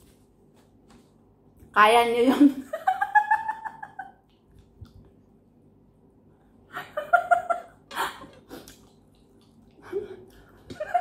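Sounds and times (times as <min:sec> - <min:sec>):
woman laughing: 0:02.2 - 0:04.2, 0:06.7 - 0:08.7, 0:09.8 - 0:11.0.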